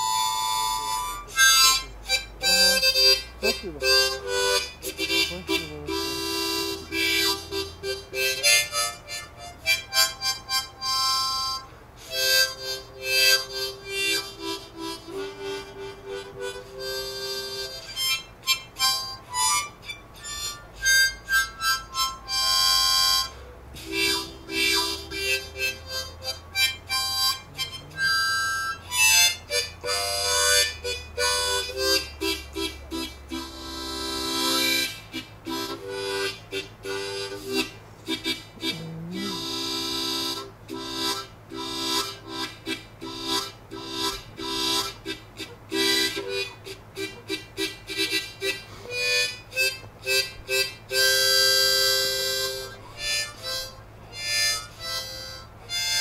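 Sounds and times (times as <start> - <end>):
music with held notes: 0.0 - 56.0.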